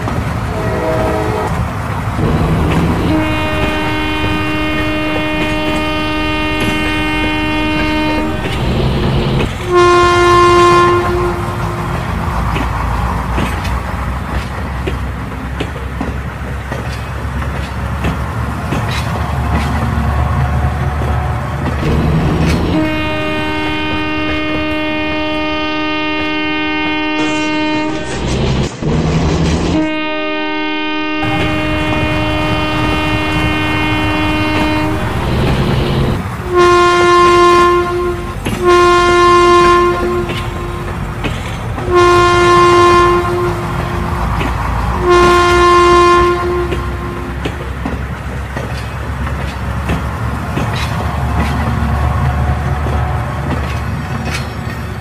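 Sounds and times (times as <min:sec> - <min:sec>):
train rumble: 0:00.0 - 0:55.0
multi-tone train horn: 0:00.4 - 0:12.3, 0:21.2 - 0:28.8, 0:29.7 - 0:48.0.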